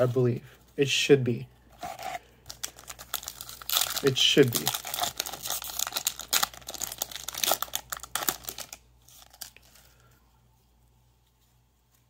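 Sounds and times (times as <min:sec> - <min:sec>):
foil wrapper crinkling and tearing: 0:02.0 - 0:10.1.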